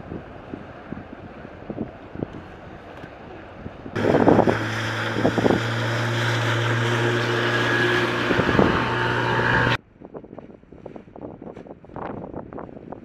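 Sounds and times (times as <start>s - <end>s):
wind noise: 0.0s - 13.0s
outboard motor running: 4.0s - 9.8s.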